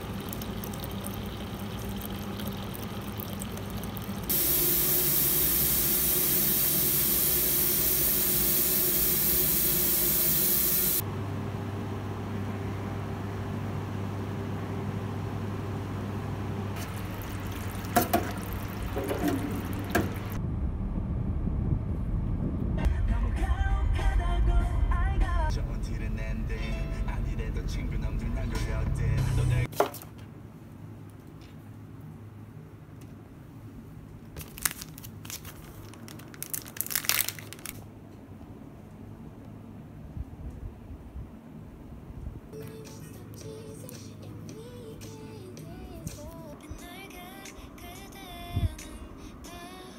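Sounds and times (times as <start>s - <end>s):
liquid boiling in a pot: 0.0s - 11.0s, 16.8s - 20.4s
low hum: 16.8s - 29.0s
plastic sleeve crinkling: 34.4s - 37.8s.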